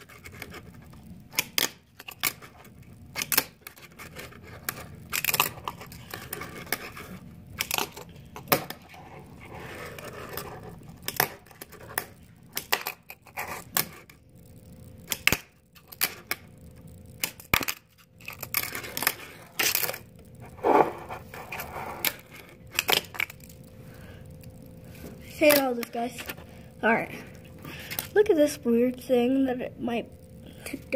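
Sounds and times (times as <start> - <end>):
fingerboard wheels scraping: 8.8 - 10.9, 20.4 - 22.3.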